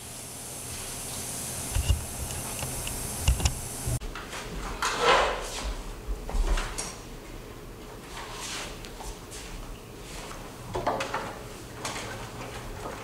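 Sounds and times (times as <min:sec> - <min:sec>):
steady hiss: 0:00.0 - 0:04.0.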